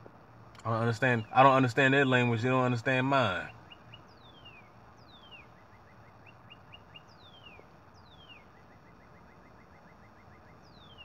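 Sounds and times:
bird singing slurred whistles: 6.2s - 8.5s, 9.4s - 11.0s.

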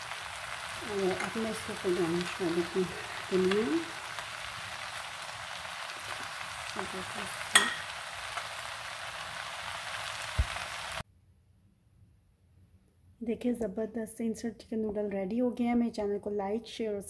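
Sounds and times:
food sizzling in a frying pan: 0.0s - 11.0s.

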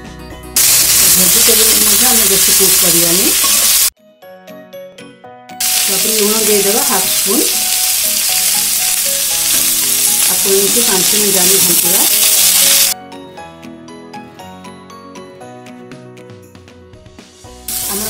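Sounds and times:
vegetables sizzling in oil: 0.6s - 3.9s, 5.6s - 13.0s, 17.6s - 18.0s
soft background music: 13.0s - 18.0s.

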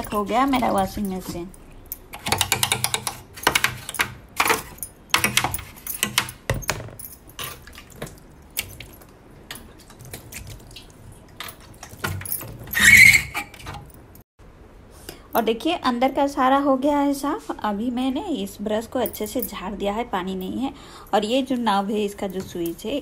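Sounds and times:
plastic parts clicking and rattling: 2.1s - 7.1s.

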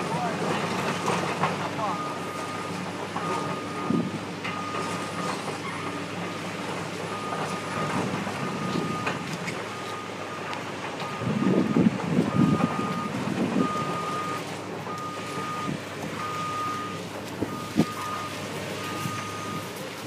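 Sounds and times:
heavy machinery engines running: 0.0s - 20.0s
backup alarm beeping: 1.8s - 6.0s, 7.1s - 19.8s.

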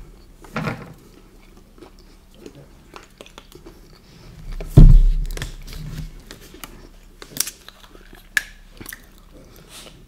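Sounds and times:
mouth sounds of eating: 0.0s - 4.7s, 5.5s - 10.0s
heavy thump: 4.7s - 5.7s.

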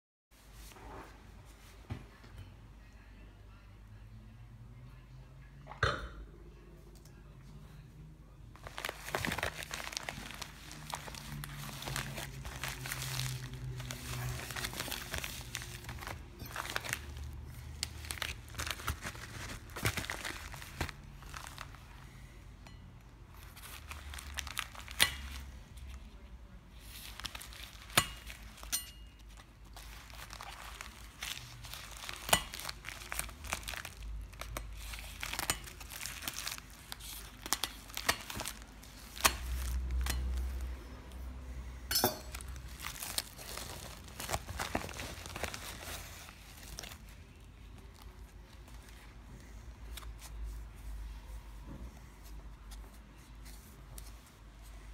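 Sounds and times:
padded mailer tearing: 8.6s - 21.7s.

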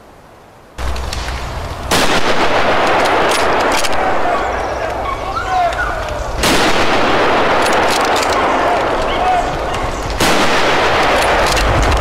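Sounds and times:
rifle shot: 0.8s - 4.6s, 6.4s - 9.0s, 10.2s - 12.0s.

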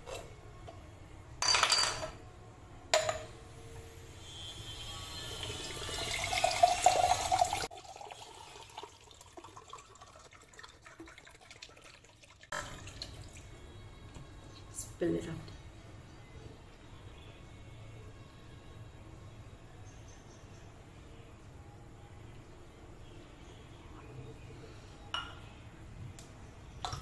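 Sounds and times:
liquid pouring: 5.4s - 13.6s.

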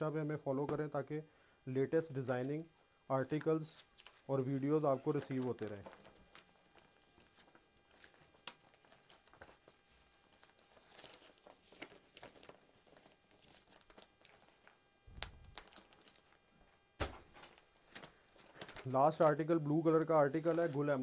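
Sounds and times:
plastic bag crinkling: 5.0s - 19.3s
loud handling noises: 17.0s - 18.8s.

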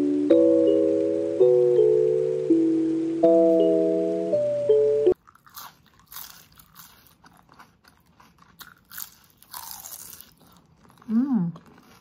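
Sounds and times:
mallet percussion jingle: 0.0s - 5.2s
crunchy food chewing: 5.2s - 12.0s.

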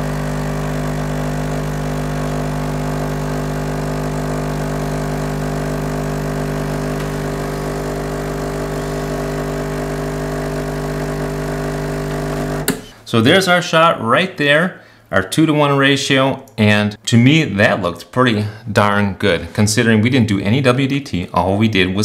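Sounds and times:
espresso machine pump humming: 0.0s - 12.9s.

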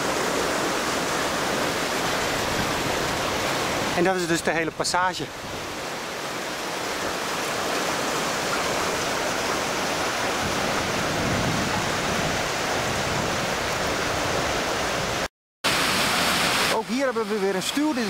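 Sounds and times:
rushing water at a weir: 0.0s - 18.0s.

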